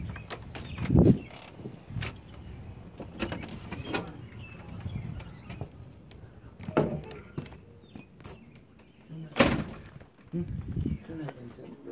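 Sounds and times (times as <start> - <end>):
front door clicks and knocks: 0.0 - 5.9, 6.6 - 10.2
door thump: 9.4 - 10.0.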